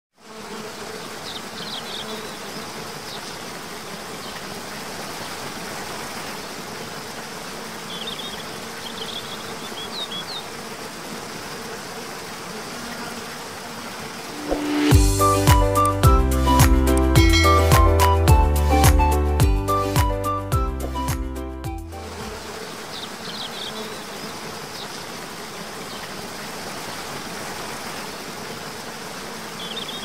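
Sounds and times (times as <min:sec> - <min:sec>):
waterfall rushing: 0:14.1 - 0:15.7.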